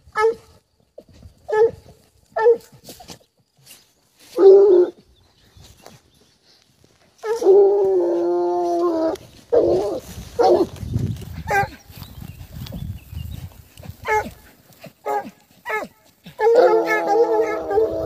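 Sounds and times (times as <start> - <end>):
hounds baying: 7.2 - 12.0, 13.3 - 18.0
dog yelping: 14.0 - 14.4, 15.0 - 18.0.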